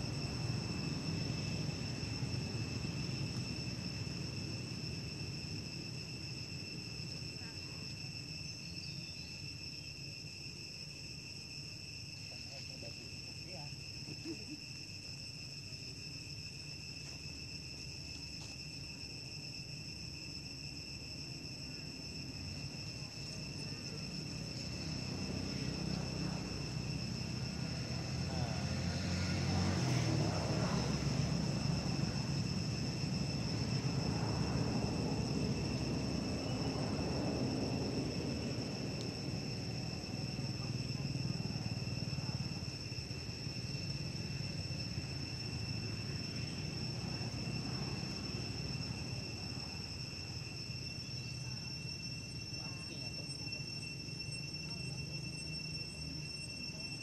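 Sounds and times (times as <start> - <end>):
high insect drone: 0.0 - 57.0
low engine rumble: 23.4 - 49.8.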